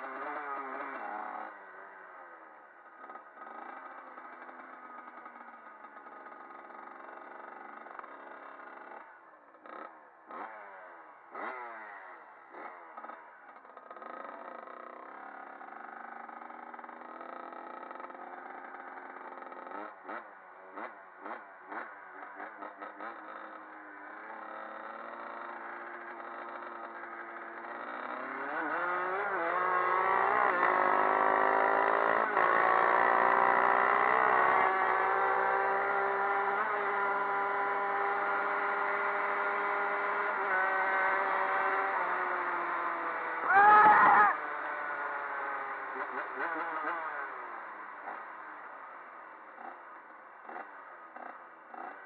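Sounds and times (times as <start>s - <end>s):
dirt bike engine revving: 9.7s - 13.2s, 14.0s - 48.3s, 50.4s - 52.0s.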